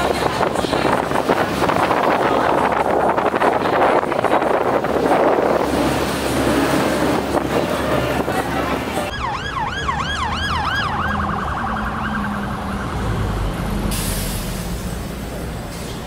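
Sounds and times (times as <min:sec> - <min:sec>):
wind buffeting microphone: 0:00.0 - 0:09.2
siren yelping and warbling: 0:09.1 - 0:13.0.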